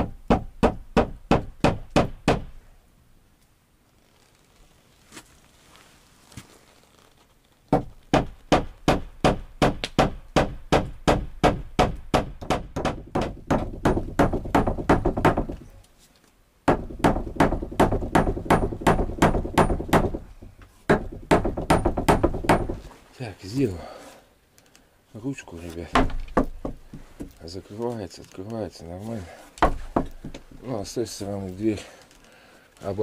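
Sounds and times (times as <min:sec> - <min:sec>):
hammering nails into wood: 0:00.0 - 0:02.6, 0:07.7 - 0:15.6, 0:16.6 - 0:20.3, 0:20.9 - 0:22.8, 0:25.9 - 0:27.3, 0:29.6 - 0:30.6.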